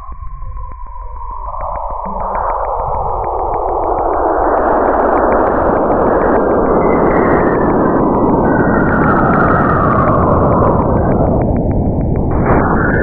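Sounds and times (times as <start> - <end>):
thin downward whistling tone: 0.0 - 4.3.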